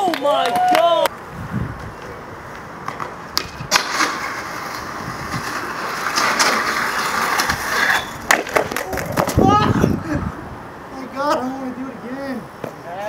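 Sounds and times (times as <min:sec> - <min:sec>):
skateboard clacks: 0:01.8 - 0:09.5
skateboard grinding metal rail: 0:03.4 - 0:09.5.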